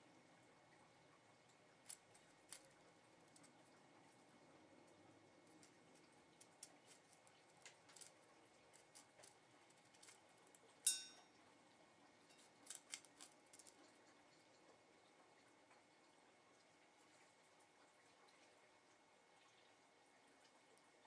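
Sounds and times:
bird beak pecking seed on metal: 0:05.5 - 0:11.3, 0:12.3 - 0:13.9
steel bowl ringing ping: 0:10.8 - 0:11.3.

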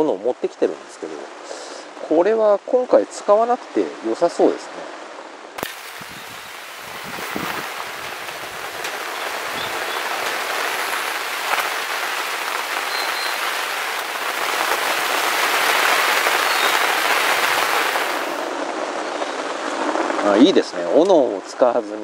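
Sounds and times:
campfire hissing: 0:05.6 - 0:20.4
fire crackles: 0:05.6 - 0:21.2.

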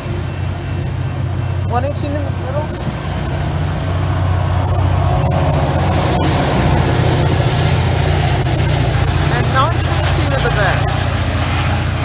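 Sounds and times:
diesel locomotive hum: 0:00.0 - 0:12.0
high wheel squeal: 0:00.0 - 0:12.0
train passing: 0:00.0 - 0:12.0.

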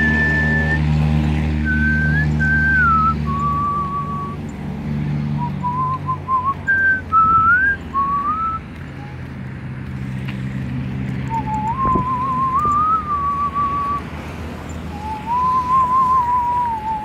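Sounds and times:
person whistling a tune: 0:00.0 - 0:00.9, 0:01.6 - 0:04.4, 0:05.4 - 0:08.7, 0:11.3 - 0:14.1, 0:14.9 - 0:17.0.

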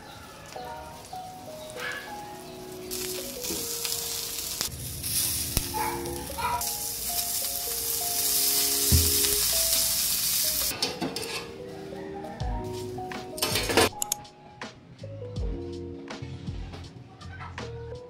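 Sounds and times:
sausage sizzling on a griddle: 0:00.0 - 0:10.7.

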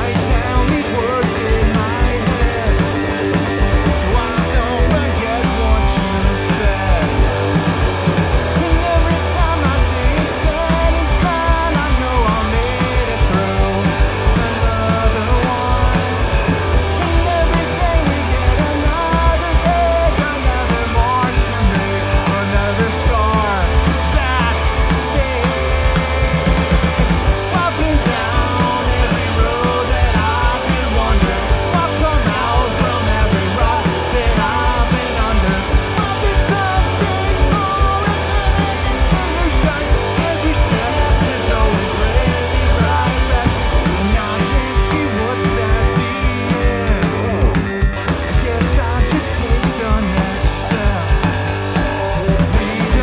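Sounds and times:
man singing: 0:00.0 - 0:53.0
punk rock band playing: 0:00.0 - 0:53.0.

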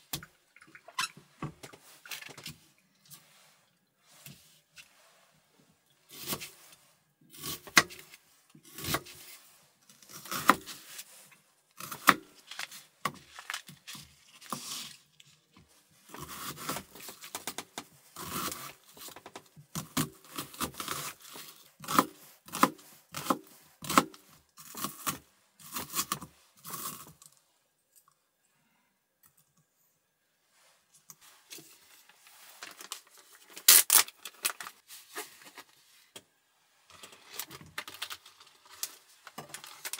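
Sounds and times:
knife slicing onion on board: 0:21.8 - 0:24.2.

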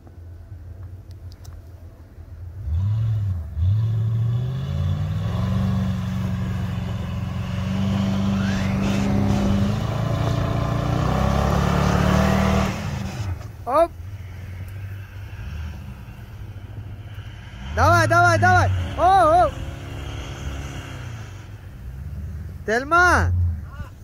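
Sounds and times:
truck engine revving: 0:02.5 - 0:24.0
wheels spinning in snow: 0:06.3 - 0:22.6.

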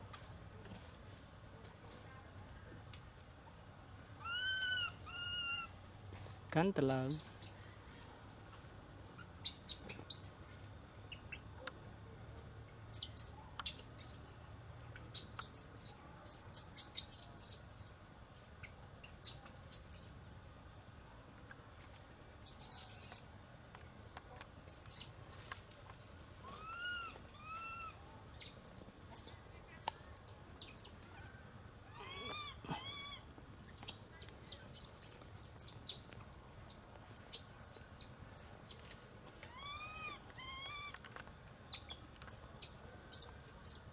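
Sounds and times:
infant monkey squeaks and squeals: 0:04.2 - 0:05.7, 0:09.2 - 0:11.4, 0:12.3 - 0:14.2, 0:15.2 - 0:20.5, 0:21.7 - 0:23.8, 0:24.7 - 0:31.0, 0:31.9 - 0:33.2, 0:33.8 - 0:36.0, 0:36.6 - 0:38.8, 0:39.5 - 0:41.0, 0:41.7 - 0:43.9.

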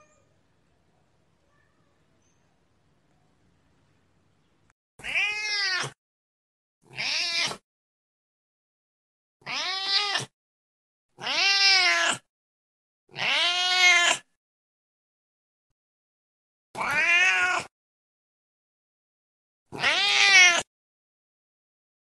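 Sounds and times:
cat meowing: 0:00.0 - 0:00.3, 0:05.0 - 0:06.0, 0:06.9 - 0:07.6, 0:09.4 - 0:10.3, 0:11.2 - 0:12.3, 0:13.1 - 0:14.3, 0:16.8 - 0:17.7, 0:19.7 - 0:20.7.

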